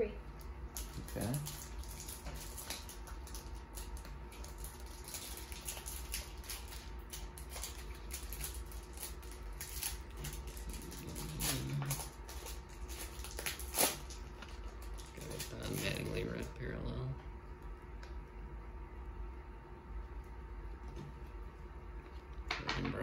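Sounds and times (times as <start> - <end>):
foil wrappers crinkling: 0.4 - 16.6.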